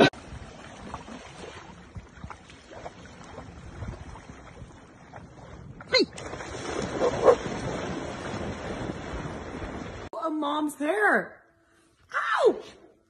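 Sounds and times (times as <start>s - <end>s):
dogs splashing in water: 6.2s - 10.1s.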